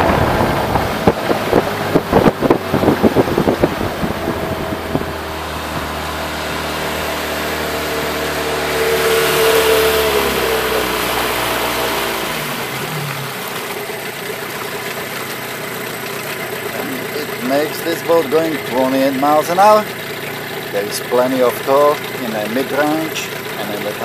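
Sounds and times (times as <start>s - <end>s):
outboard motor running: 0.0s - 24.0s.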